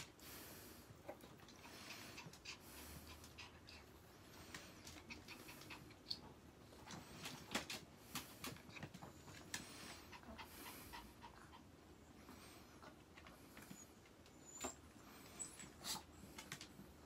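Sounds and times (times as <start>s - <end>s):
dog panting: 0.0s - 14.1s.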